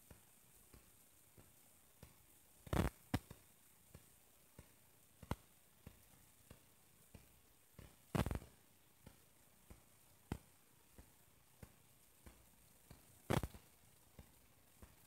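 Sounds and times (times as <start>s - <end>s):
footsteps on stone paving: 13.3s - 13.5s.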